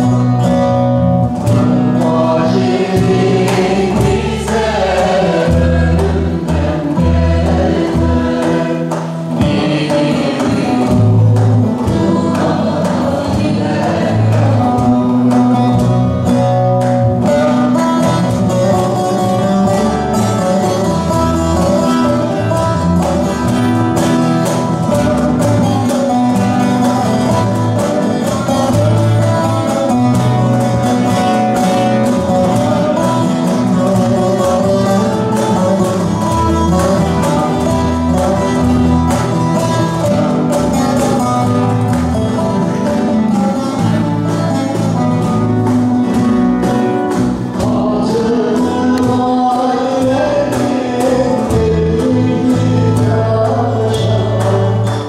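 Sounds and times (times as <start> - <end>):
cajon beat: 0.0 - 55.0
plucked lute melody: 0.0 - 55.0
woman singing: 2.0 - 15.8.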